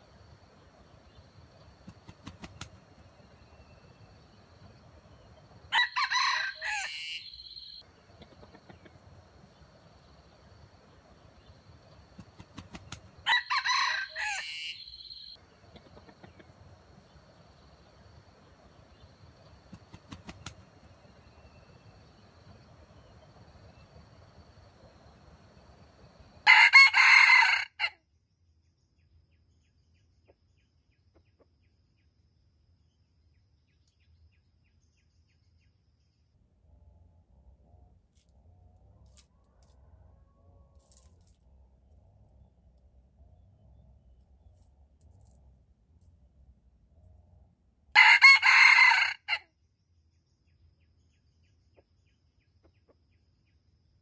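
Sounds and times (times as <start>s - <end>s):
rooster crowing: 5.7s - 7.8s, 13.2s - 15.4s, 26.4s - 28.0s, 47.9s - 49.4s.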